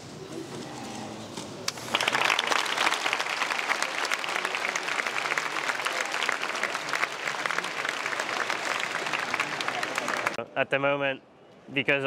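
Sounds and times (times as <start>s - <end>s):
audience applause: 1.7s - 10.4s.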